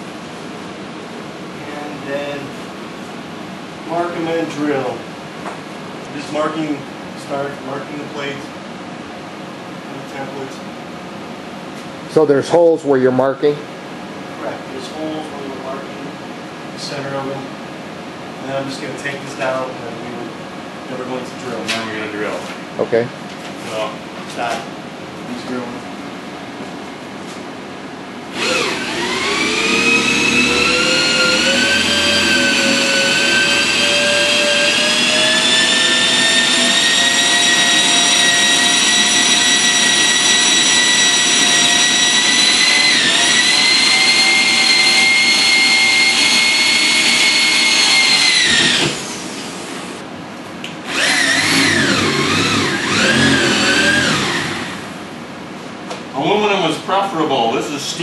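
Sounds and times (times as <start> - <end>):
electric drill boring into steel: 28.3 - 49.2, 50.8 - 54.9.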